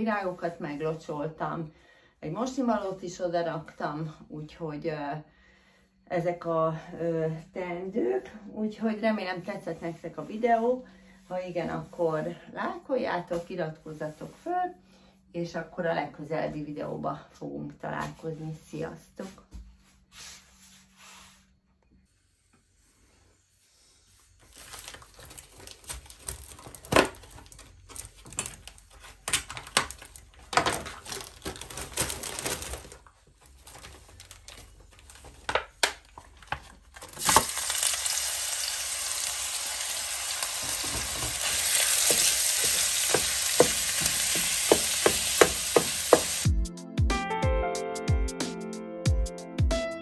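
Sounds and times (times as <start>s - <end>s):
meat sizzling in hot oil: 37.2s - 46.5s
wooden spoon scraping a pot: 40.5s - 46.4s.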